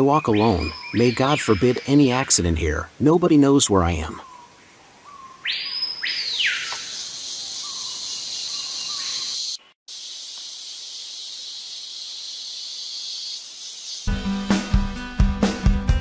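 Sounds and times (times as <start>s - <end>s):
insect chorus drone: 5.5s - 14.1s.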